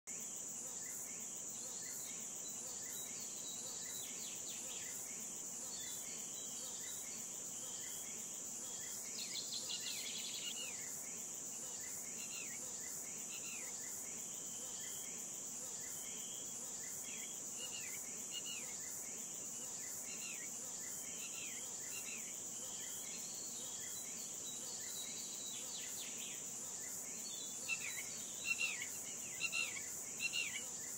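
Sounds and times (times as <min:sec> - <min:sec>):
crickets trilling: 0:00.1 - 0:30.9
bird chirping: 0:27.2 - 0:30.8.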